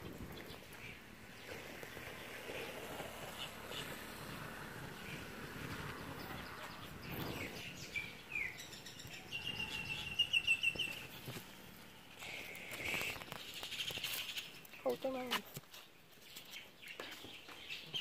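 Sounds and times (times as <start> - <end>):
faint outdoor background noise: 0.0 - 18.0
bird chirping: 4.8 - 18.0.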